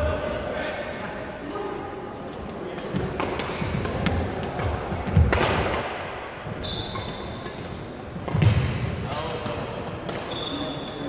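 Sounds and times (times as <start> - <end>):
rackets striking shuttlecock: 2.8 - 6.0, 6.9 - 11.0.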